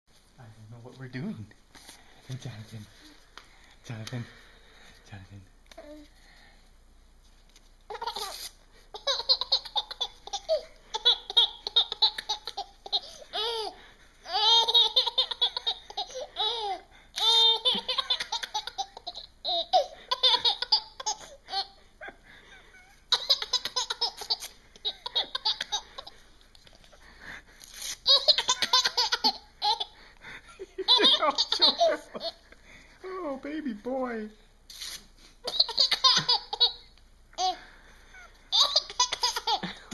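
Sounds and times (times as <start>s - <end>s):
baby laughing hysterically: 7.9s - 21.8s, 23.0s - 26.2s, 28.0s - 30.0s, 30.8s - 32.4s, 35.4s - 37.6s, 38.5s - 39.8s
paper tearing: 8.1s - 8.6s, 27.6s - 28.1s, 34.7s - 35.2s.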